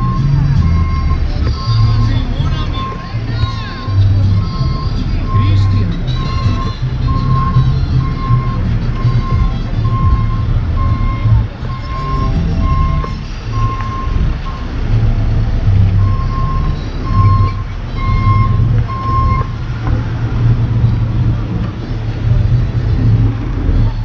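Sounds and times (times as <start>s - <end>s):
backup alarm beeping: 0.0s - 19.6s
engines and street traffic rumble: 0.0s - 24.0s.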